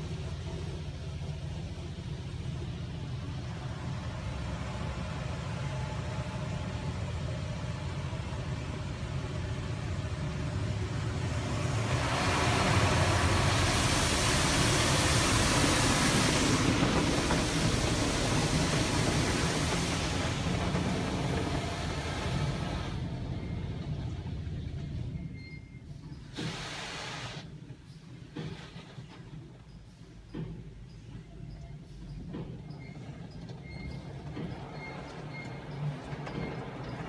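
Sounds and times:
car wash low rumble: 0.0s - 37.0s
water spray hissing on windows: 11.6s - 23.0s, 26.3s - 27.5s.

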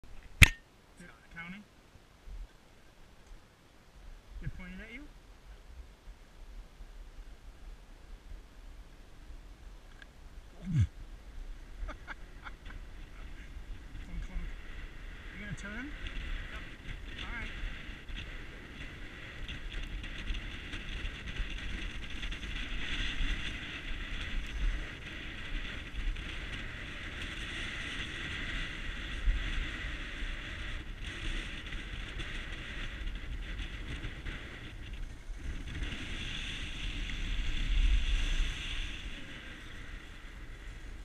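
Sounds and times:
wind buffeting microphone: 11.5s - 41.0s
skis hissing and scraping on snow: 32.2s - 41.0s.

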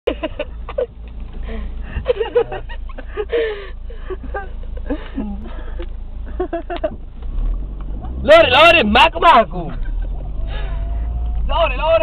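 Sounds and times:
car engine idling: 0.1s - 12.0s
stifled laughing: 1.8s - 5.6s.

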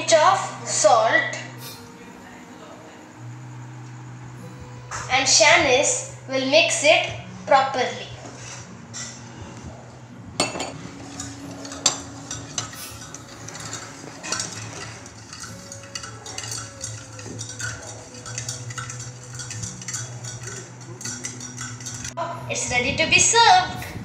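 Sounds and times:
spoon clinking in metal pot: 10.4s - 22.2s.

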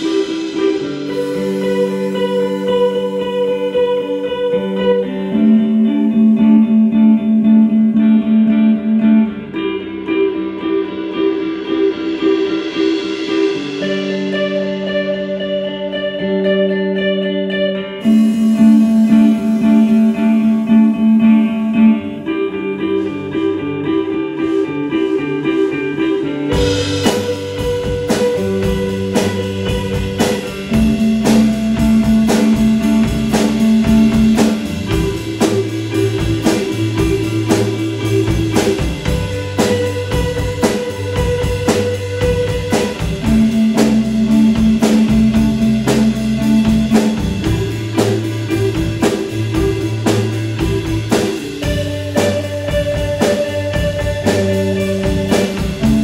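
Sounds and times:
drum kit steady beat: 0.0s - 4.2s, 11.6s - 15.4s, 18.0s - 22.2s, 26.5s - 56.0s
electric guitars ringing: 0.0s - 56.0s.

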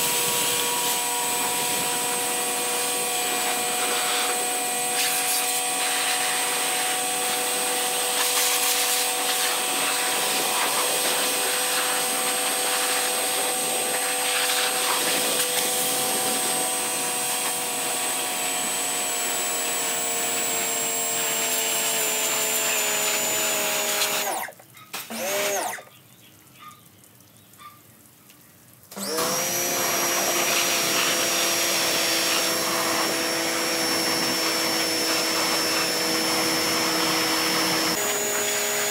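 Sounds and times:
water jet hissing: 0.0s - 18.8s
pressure washer motor whining: 0.0s - 25.9s, 28.9s - 38.9s.

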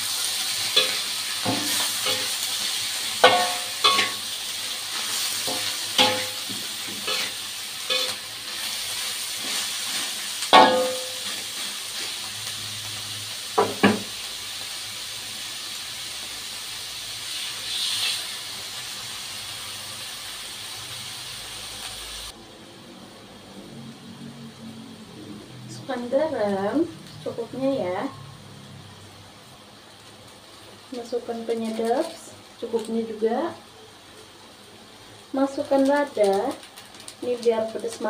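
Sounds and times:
food sizzling in a wok: 0.0s - 38.0s
spatula clanking against wok: 3.2s - 4.2s, 5.4s - 8.2s, 10.5s - 11.4s.

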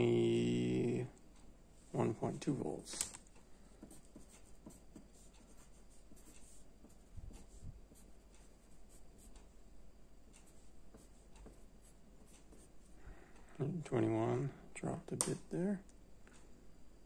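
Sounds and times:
pencil scratching on paper: 3.7s - 9.4s, 10.4s - 12.9s.

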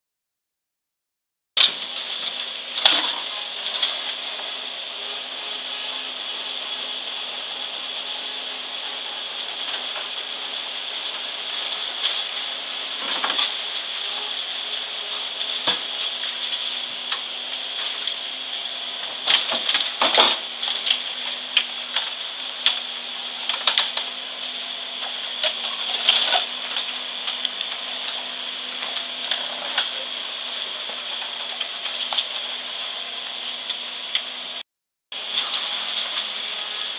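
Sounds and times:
mini excavator whining and humming: 1.6s - 34.6s, 35.2s - 36.9s.

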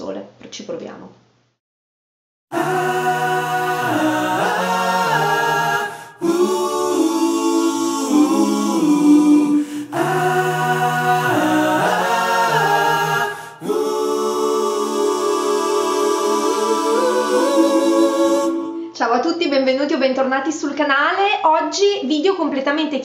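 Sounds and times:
voices singing a cappella: 2.5s - 19.4s.

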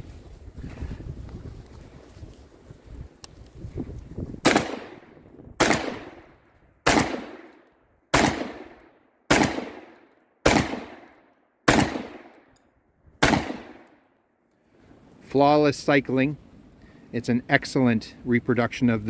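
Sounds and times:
shotgun shots echoing: 4.4s - 12.5s, 13.2s - 14.0s.

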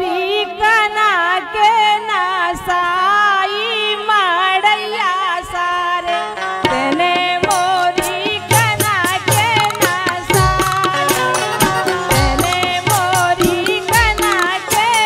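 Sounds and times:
harmonium: 0.0s - 15.0s
woman singing folk song: 0.0s - 15.0s
hand drum: 6.7s - 15.0s.

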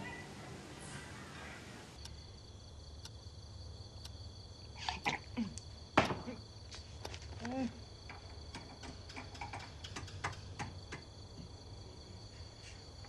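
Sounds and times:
faint hiss: 0.0s - 2.4s
low outdoor rumble: 0.0s - 5.9s
high insect drone: 0.0s - 13.0s.

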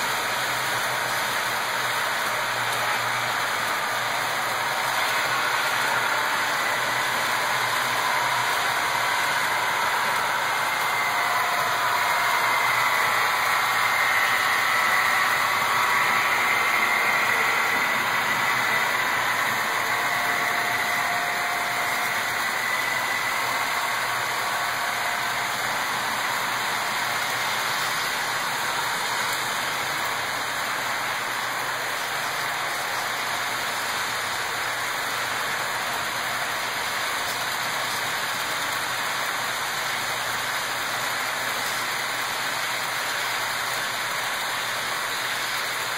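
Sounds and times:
model train wheels rolling: 0.0s - 45.9s
faint whine: 1.1s - 33.5s.

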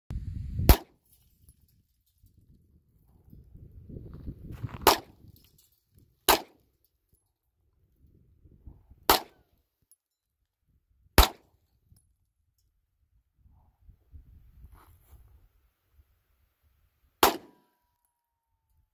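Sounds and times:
handgun shots: 0.7s - 1.0s, 4.8s - 5.2s, 6.3s - 6.6s, 9.1s - 9.4s, 11.2s - 11.4s, 17.2s - 17.7s.

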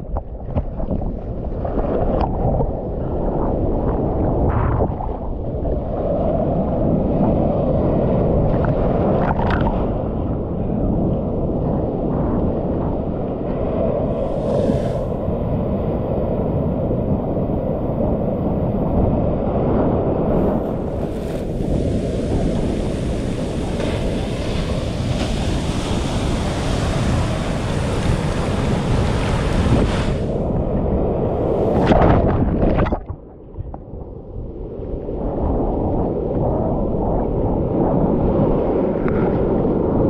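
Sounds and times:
ocean surf churning: 3.1s - 33.3s.

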